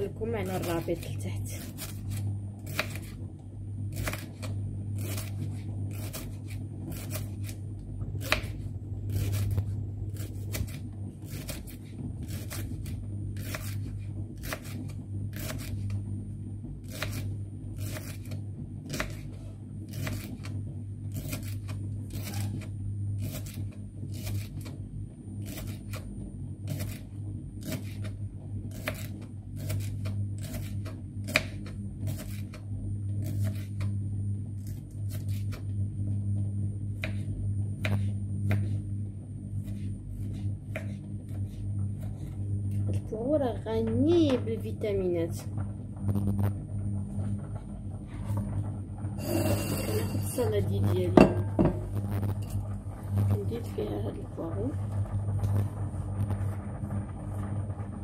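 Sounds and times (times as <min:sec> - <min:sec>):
low hum: 0:00.0 - 0:58.0
knife slicing leek on cutting board: 0:00.5 - 0:03.2, 0:03.9 - 0:07.6, 0:08.2 - 0:15.9, 0:16.9 - 0:19.3, 0:19.9 - 0:20.5, 0:21.1 - 0:24.7, 0:27.6 - 0:32.6, 0:33.2 - 0:33.9.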